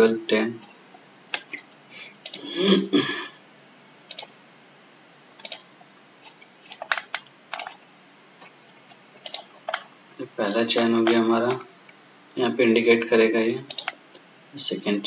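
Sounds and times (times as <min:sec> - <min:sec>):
computer mouse clicking: 0:01.3 - 0:01.6, 0:02.2 - 0:02.4, 0:04.1 - 0:04.3, 0:05.4 - 0:05.8, 0:06.7 - 0:07.8, 0:08.4 - 0:11.6, 0:13.7 - 0:14.2.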